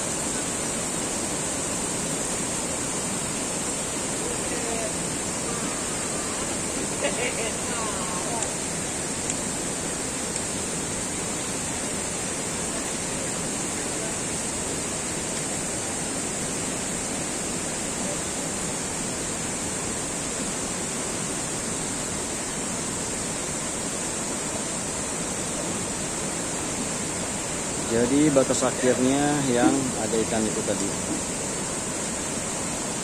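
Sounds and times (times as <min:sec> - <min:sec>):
running water rushing: 0:00.0 - 0:33.0.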